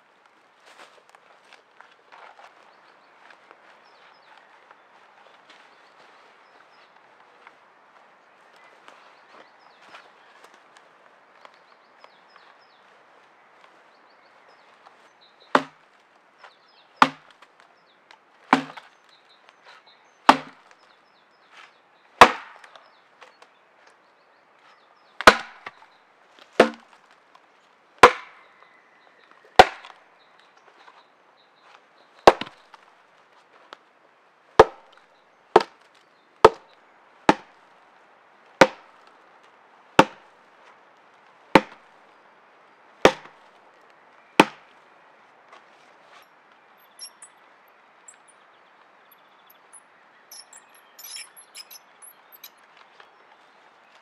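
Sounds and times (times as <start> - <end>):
wood chopping strikes: 15.5 - 15.8, 17.0 - 17.3, 18.5 - 18.9, 20.3 - 20.6, 22.2 - 22.8, 25.2 - 25.8, 26.6 - 27.0, 28.0 - 28.4, 29.6 - 30.0, 32.3 - 32.6, 34.6 - 34.8, 35.6 - 35.8, 36.4 - 36.6, 37.3 - 37.5, 38.6 - 38.8, 40.0 - 40.2, 41.6 - 41.8, 43.0 - 43.3, 44.4 - 44.6.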